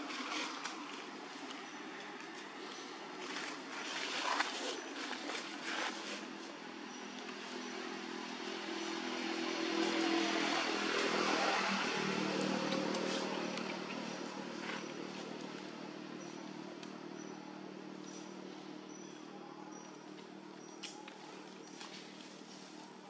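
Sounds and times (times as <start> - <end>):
motorbike engine passing by: 7.4 - 15.4.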